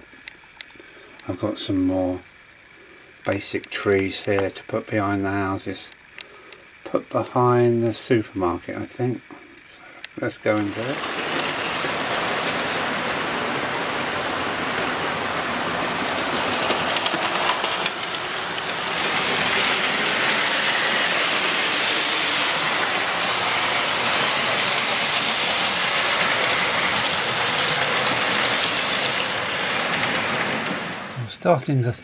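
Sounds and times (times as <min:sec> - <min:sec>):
model train wheels whirring on track: 0:00.0 - 0:31.4
faint clicks over rail joints: 0:16.0 - 0:19.8.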